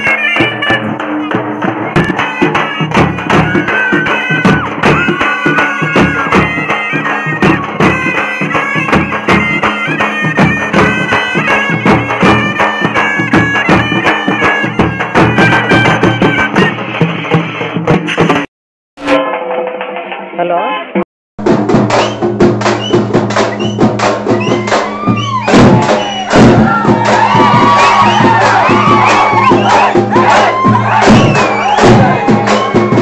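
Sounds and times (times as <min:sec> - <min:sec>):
reedy wind instrument melody: 0:00.0 - 0:17.6, 0:25.0 - 0:33.0
rapid stick-beaten drumming: 0:00.0 - 0:20.3, 0:21.4 - 0:33.0.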